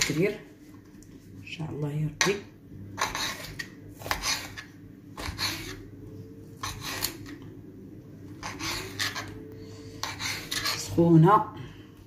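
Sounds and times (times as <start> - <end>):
knife scraping ceramic plate: 3.0 - 5.8, 6.6 - 7.4, 8.4 - 11.0.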